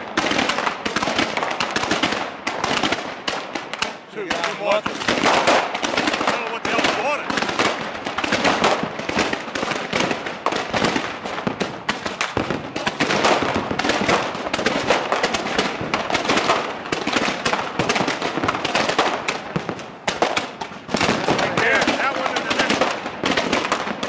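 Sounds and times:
fireworks popping and crackling: 0:00.0 - 0:24.0.

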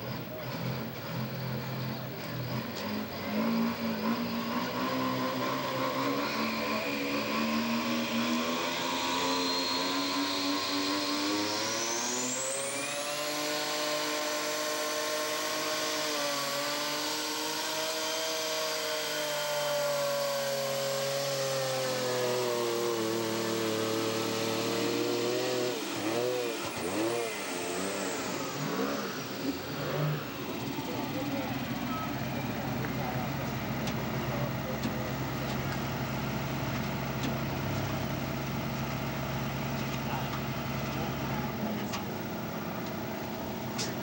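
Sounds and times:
diesel truck engine revving: 0:00.0 - 0:44.0
high whine: 0:22.0 - 0:44.0.

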